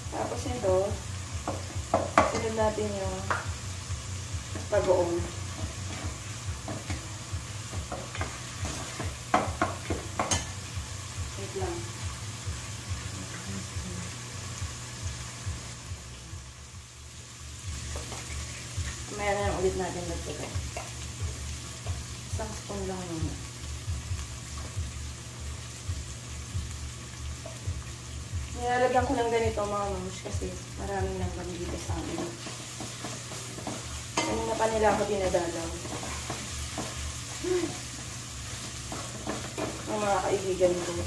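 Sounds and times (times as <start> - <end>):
meat sizzling in a pot: 0.0 - 41.0
person's voice: 28.6 - 32.3, 34.2 - 35.8.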